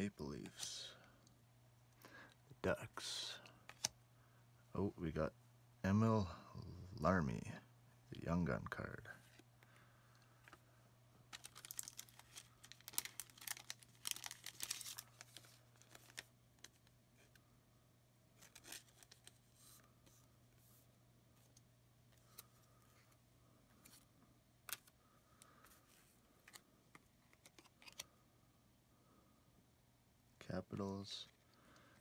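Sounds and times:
cards clicking and rustling: 3.4 - 4.0, 11.3 - 17.4, 18.4 - 19.8, 21.4 - 28.2
wrapper crinkling and tearing: 11.3 - 16.8.

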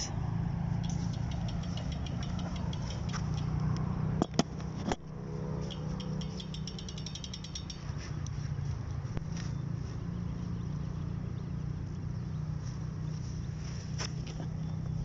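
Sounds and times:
low engine-like hum: 0.0 - 15.0
fast faint high ticking: 0.7 - 3.8, 5.6 - 8.4
sharp clicks: 0.8 - 5.0, 5.7 - 8.3.

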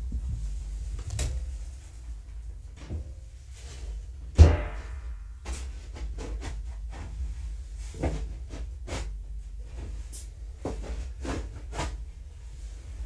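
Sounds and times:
louder thumps: 4.3 - 5.6.

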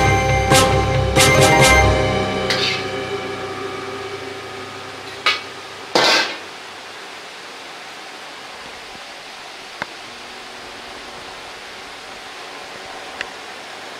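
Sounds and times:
restaurant kitchen noise: 1.8 - 7.2.

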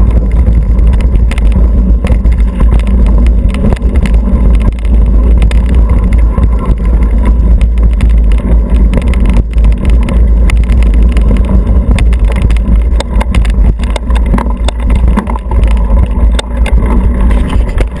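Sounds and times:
low rumble of bike vibration and wind: 0.0 - 18.0
rattles and knocks of bike tyres: 0.0 - 18.0.

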